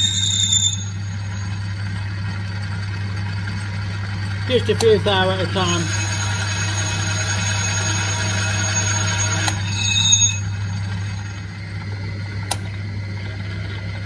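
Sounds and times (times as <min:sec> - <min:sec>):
high-pitched ring: 0:00.0 - 0:02.1, 0:05.5 - 0:11.6
lathe cutting metal: 0:00.0 - 0:11.8
lathe humming: 0:00.0 - 0:14.0
single click: 0:12.5 - 0:12.7.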